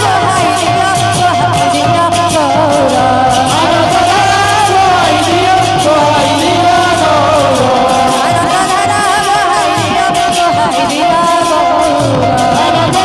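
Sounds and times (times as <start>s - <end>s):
drum: 0.0s - 13.0s
hand cymbals: 0.0s - 13.0s
woman singing devotional song: 0.0s - 13.0s
steady held drone note: 1.7s - 10.0s.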